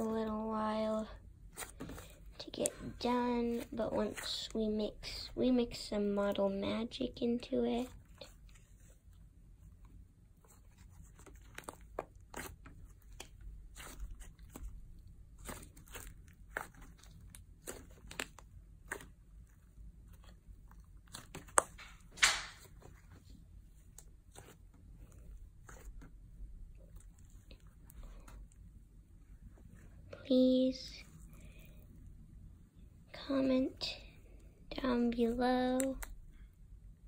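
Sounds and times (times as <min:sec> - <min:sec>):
slime squished by hand: 0:11.0 - 0:23.0.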